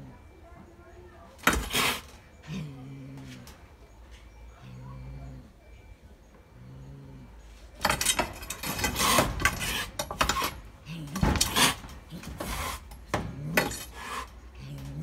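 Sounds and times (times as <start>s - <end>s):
cat growling: 1.6s - 3.6s, 4.6s - 5.7s, 6.5s - 7.4s.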